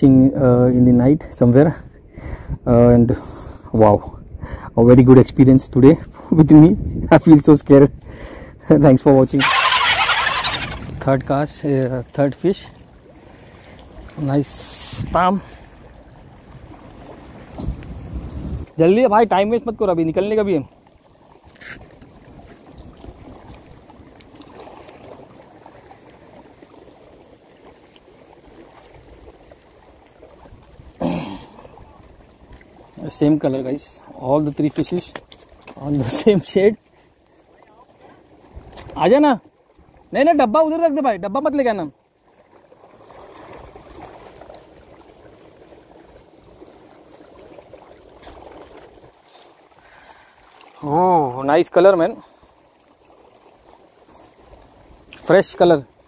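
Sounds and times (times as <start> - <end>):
seawater lapping over rocks: 9.3 - 19.0, 20.5 - 40.4, 41.6 - 56.0
water trickling and sloshing: 9.3 - 56.0.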